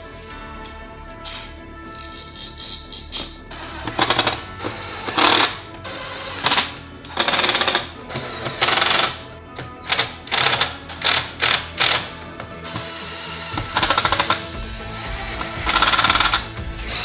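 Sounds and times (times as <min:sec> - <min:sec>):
background music: 0:00.0 - 0:17.0
impact driver hammering: 0:03.7 - 0:14.6, 0:15.2 - 0:17.0.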